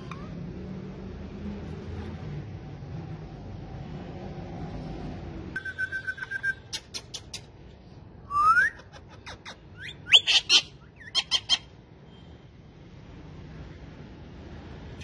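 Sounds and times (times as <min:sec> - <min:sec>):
parakeets chirping and squawking: 0:08.8 - 0:11.8.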